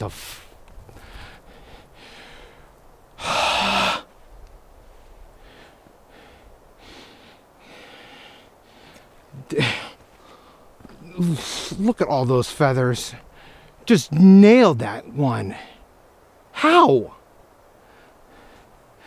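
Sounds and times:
man breathing hard: 0.9s - 4.1s, 5.4s - 10.8s, 13.3s - 13.8s, 17.8s - 19.0s.

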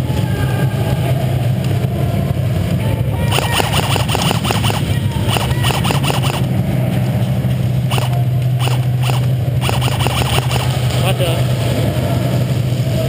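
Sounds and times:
steady low hum: 0.0s - 13.0s
airsoft guns firing clicks: 3.3s - 6.5s, 7.9s - 10.8s.

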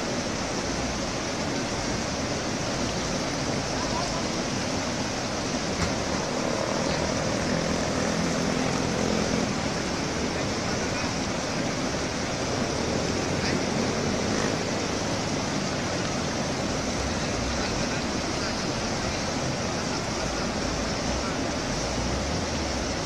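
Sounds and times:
river water rushing over rocks: 0.0s - 23.0s
vehicle engine running: 1.0s - 23.0s.

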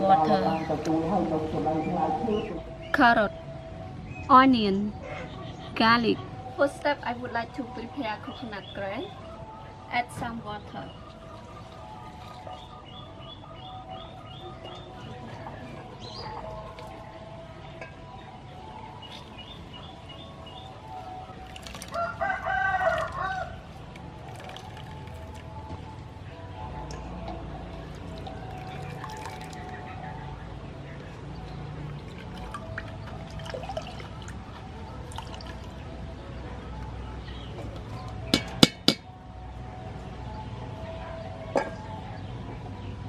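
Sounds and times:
small birds chirping: 8.2s - 22.1s
liquid trickling into a bowl: 10.9s - 25.9s, 27.3s - 29.9s, 30.9s - 36.1s
rooster crowing: 21.9s - 23.6s
strainer knocking on steel bowl: 38.4s - 39.1s.

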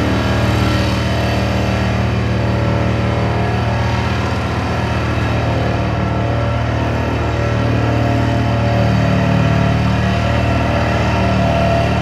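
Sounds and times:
diesel engine running under load: 0.0s - 12.0s.

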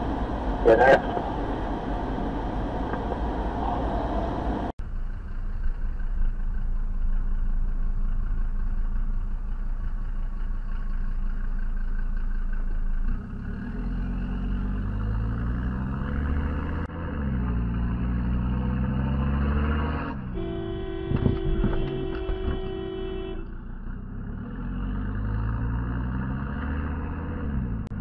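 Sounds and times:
car engine and road noise: 0.0s - 28.0s.

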